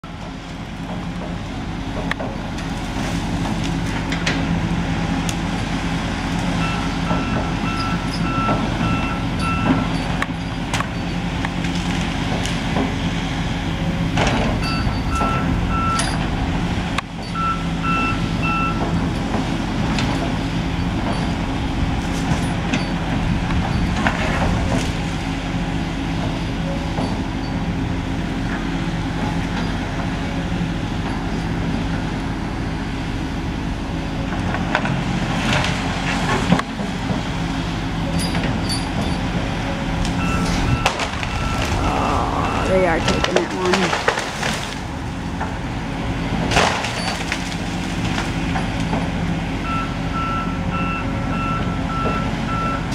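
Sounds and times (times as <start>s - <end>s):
excavator diesel engine running: 0.0s - 52.9s
travel alarm beeps: 6.6s - 9.9s, 14.6s - 16.2s, 17.3s - 18.8s, 40.2s - 41.9s, 49.7s - 52.9s
sharp cracks and knocks: 43.2s - 44.8s, 46.4s - 49.1s.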